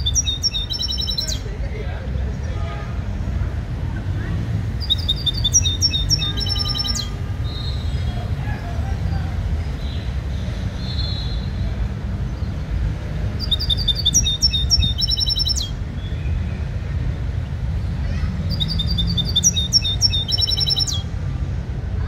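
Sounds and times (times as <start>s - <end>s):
songbird singing trills: 0.0s - 1.5s, 4.8s - 8.2s, 13.4s - 16.4s, 18.4s - 21.1s.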